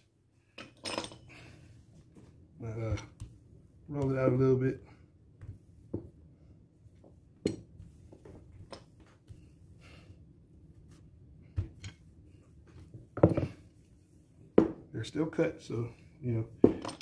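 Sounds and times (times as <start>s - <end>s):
rolling pin rolling dough: 1.7s - 4.7s, 5.3s - 9.8s.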